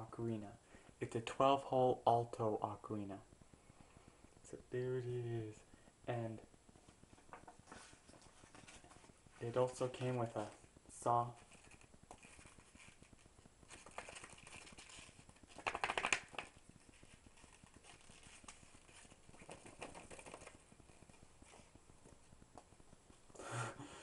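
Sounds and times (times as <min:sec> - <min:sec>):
booklet pages rustling: 0:06.7 - 0:23.2
pages riffling: 0:11.3 - 0:21.7.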